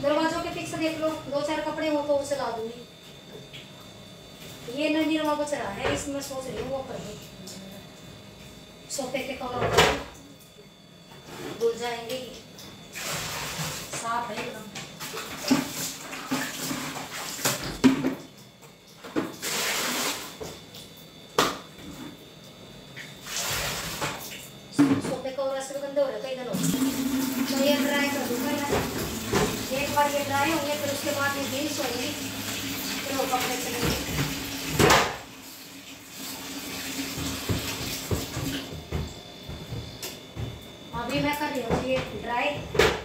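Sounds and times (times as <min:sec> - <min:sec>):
water sloshing in a bucket: 0:11.2 - 0:22.3, 0:22.9 - 0:25.3, 0:26.6 - 0:42.6.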